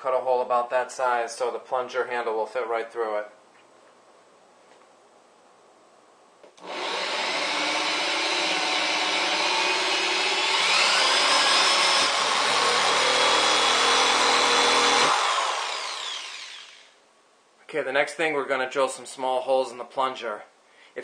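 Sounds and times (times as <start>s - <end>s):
electric drill boring plastic: 6.6s - 17.0s.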